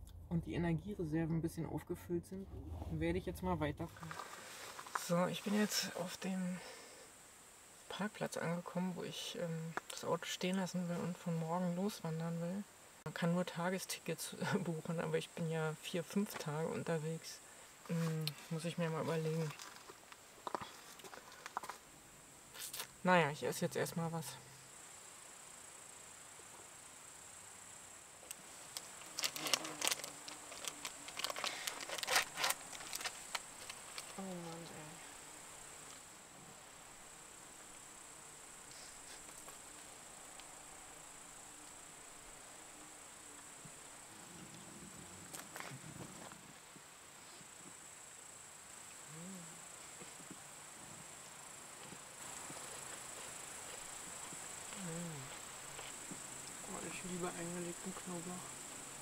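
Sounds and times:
crickets chirring: 3.1s - 59.0s
plastic food packet crinkling: 28.7s - 34.2s
woman humming: 49.0s - 49.6s, 54.7s - 55.4s.

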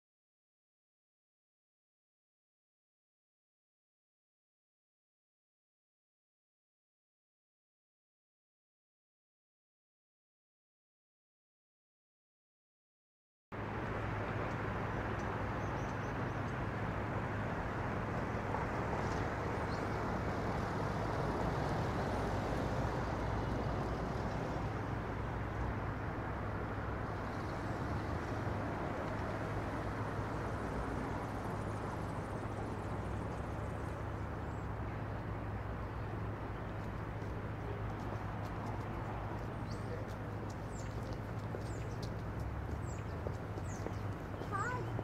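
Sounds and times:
distant traffic hum: 13.6s - 45.0s.

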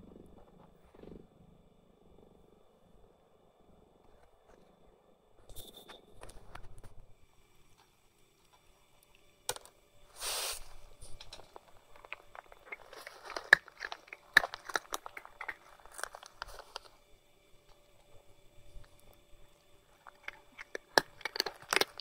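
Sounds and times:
cat crunching dry food: 11.0s - 22.0s.

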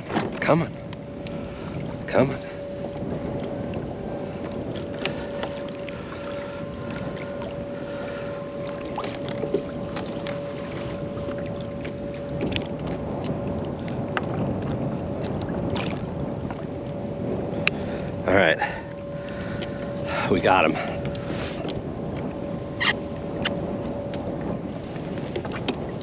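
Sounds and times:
water slapping against kayak hull: 0.0s - 0.6s, 2.9s - 18.2s, 20.9s - 26.0s
faint steady hum: 0.7s - 13.8s.

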